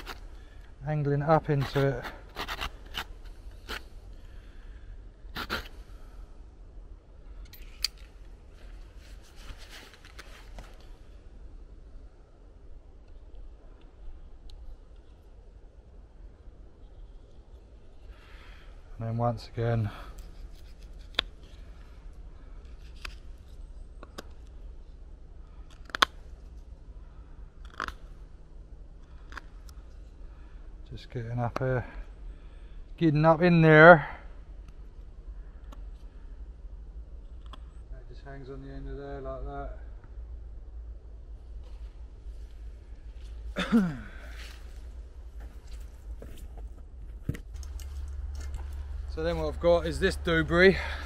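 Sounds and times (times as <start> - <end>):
knife cutting wood: 1.5 - 3.9, 5.4 - 5.8.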